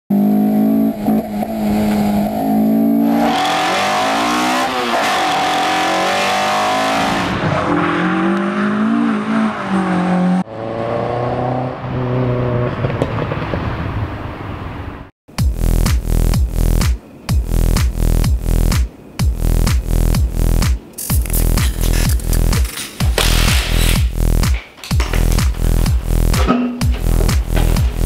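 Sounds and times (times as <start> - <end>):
car engine revving: 0.1 - 14.3, 19.4 - 24.4.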